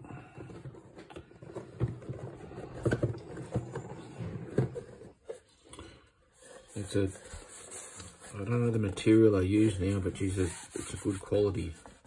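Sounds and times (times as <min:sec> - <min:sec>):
cardboard scraping on cardboard: 0:06.4 - 0:12.0.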